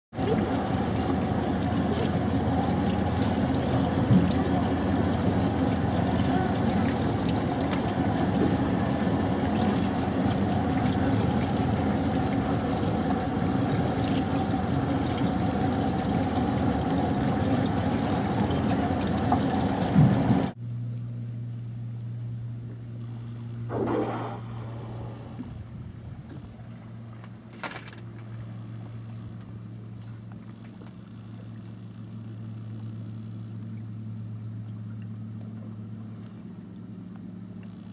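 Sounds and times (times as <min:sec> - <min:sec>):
water sloshing against hull: 0:00.2 - 0:20.6, 0:22.6 - 0:37.9
low hum: 0:00.2 - 0:37.9
low rumble: 0:19.6 - 0:27.5.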